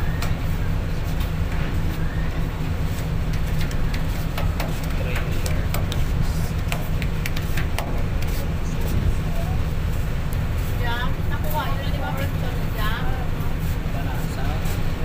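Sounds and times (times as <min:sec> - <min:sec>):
ferry low rumble: 0:00.0 - 0:15.0.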